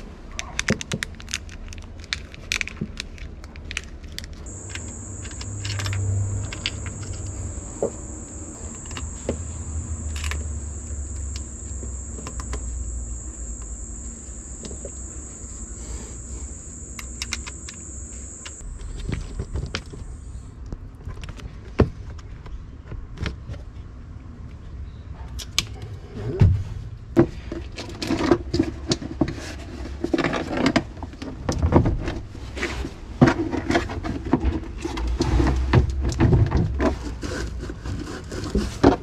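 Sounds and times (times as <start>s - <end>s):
high-pitched insect drone: 4.5s - 20.3s.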